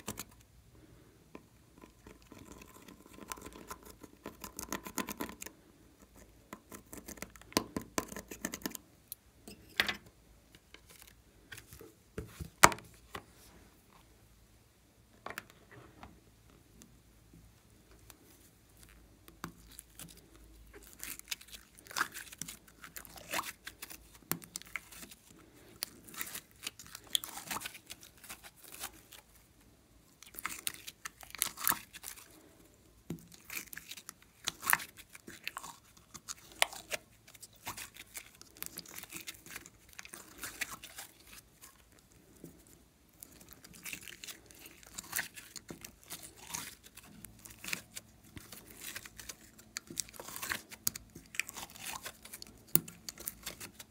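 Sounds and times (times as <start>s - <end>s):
slime crackling and popping: 18.8s - 29.4s, 30.1s - 32.4s, 33.2s - 42.1s, 43.1s - 53.9s.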